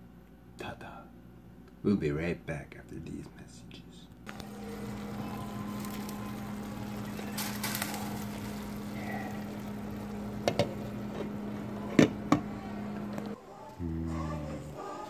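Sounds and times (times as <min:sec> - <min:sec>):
pot simmering: 0:04.3 - 0:14.4
low hum: 0:04.3 - 0:14.8.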